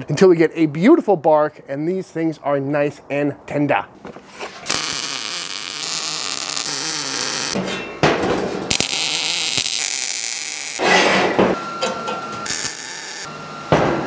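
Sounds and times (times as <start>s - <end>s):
welder arc crackling and hissing: 4.7s - 7.6s, 8.7s - 10.8s, 12.4s - 13.3s.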